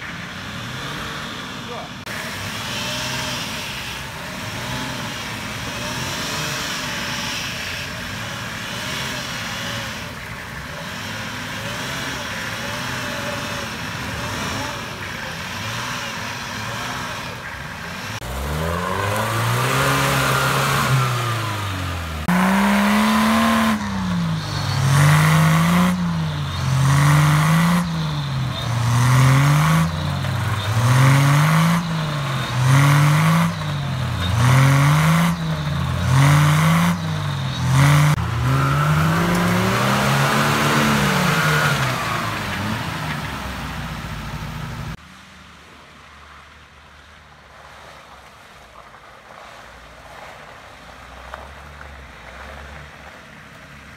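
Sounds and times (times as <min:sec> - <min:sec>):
off-road engines revving hard: 0:00.0 - 0:45.0.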